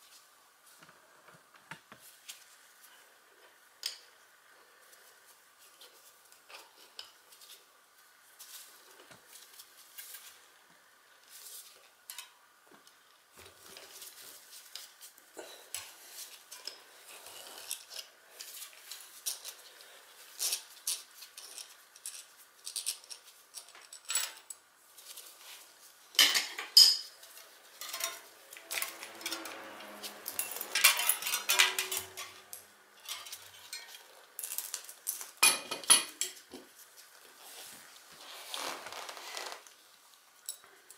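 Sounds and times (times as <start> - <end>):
metal tools clinking on cassette: 27.8 - 34.8.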